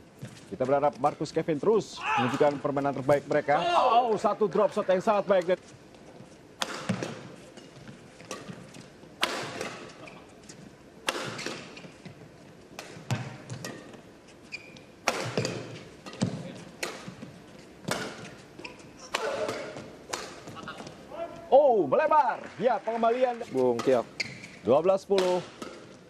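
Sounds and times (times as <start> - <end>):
shoes squeaking on court: 5.6 - 21.1, 23.4 - 24.8
rackets striking shuttlecock: 6.6 - 7.2, 9.2 - 10.1, 11.0 - 11.8, 14.7 - 18.4, 19.1 - 20.6, 25.1 - 26.0.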